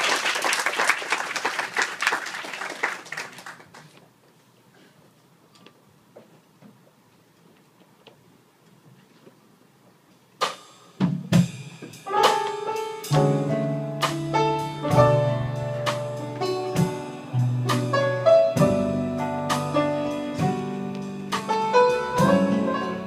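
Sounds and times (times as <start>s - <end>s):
live band playing jazz ballad: 10.4s - 23.0s.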